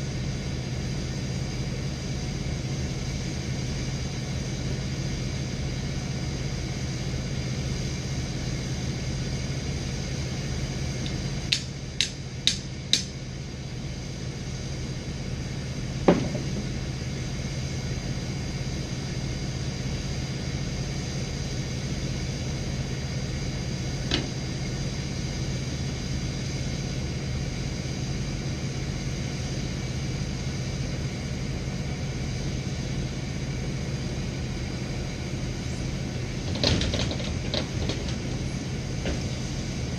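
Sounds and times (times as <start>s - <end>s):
truck engine humming: 0.0s - 39.9s
knock: 16.1s - 16.7s.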